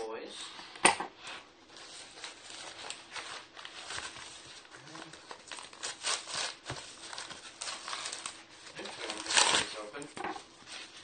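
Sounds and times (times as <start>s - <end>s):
paper envelope tearing and crinkling: 1.8s - 10.0s.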